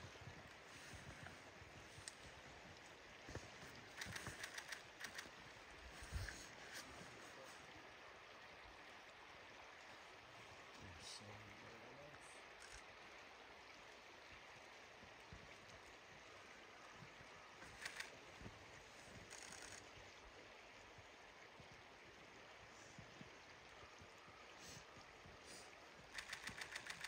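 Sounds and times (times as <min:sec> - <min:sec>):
faint flowing river water: 0:00.0 - 0:27.0
soft clicks: 0:03.8 - 0:05.3.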